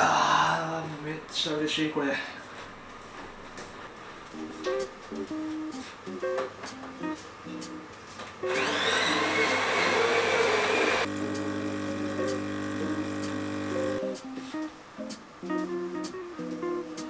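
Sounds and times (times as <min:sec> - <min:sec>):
coffee grinder whining: 0:08.5 - 0:14.0
pump humming: 0:08.5 - 0:14.0
espresso pouring: 0:08.6 - 0:13.7.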